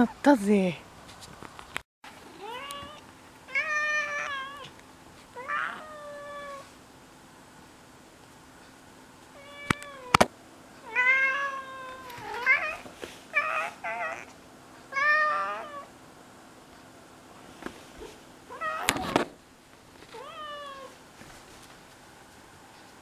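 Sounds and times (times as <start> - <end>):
cat meowing: 2.3 - 4.7, 5.4 - 6.7, 10.8 - 14.3, 14.9 - 15.9, 18.5 - 19.2, 20.1 - 21.0.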